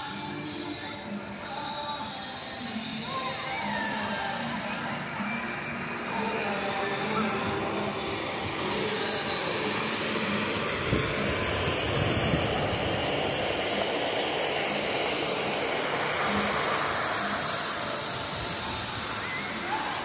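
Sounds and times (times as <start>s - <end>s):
water rushing over rocks: 5.1s - 20.0s.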